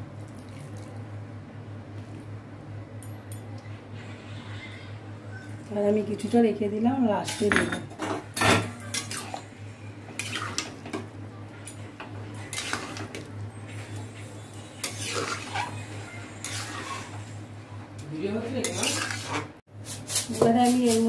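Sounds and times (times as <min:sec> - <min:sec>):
metal spatula scraping wok: 0:10.2 - 0:10.7, 0:12.4 - 0:13.2, 0:13.8 - 0:17.5, 0:18.6 - 0:21.0.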